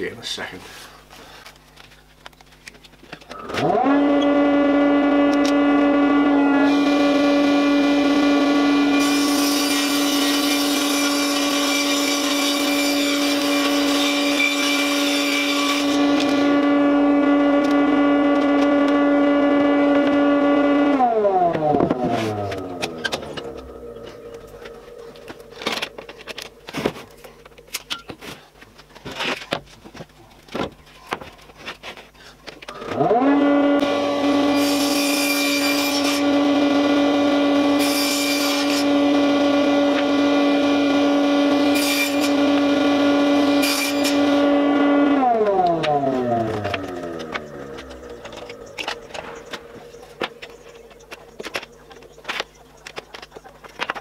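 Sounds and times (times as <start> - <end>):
table saw humming: 3.4 - 26.7, 32.7 - 52.2
saw blade cutting wood: 3.4 - 27.0, 32.7 - 51.8.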